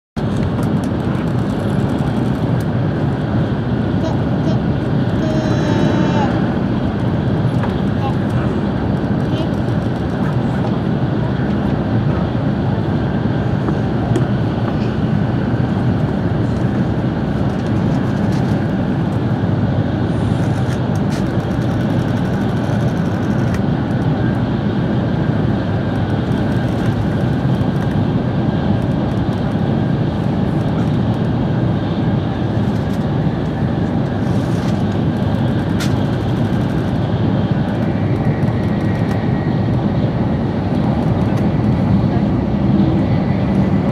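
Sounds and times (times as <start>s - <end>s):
train running at speed: 0.2s - 43.9s.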